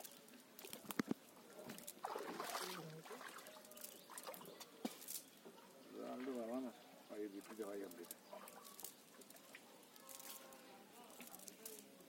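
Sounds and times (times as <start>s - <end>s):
light clicks of net: 0.0s - 5.4s, 7.4s - 12.0s
cast net rustling: 0.0s - 6.6s, 7.3s - 12.0s.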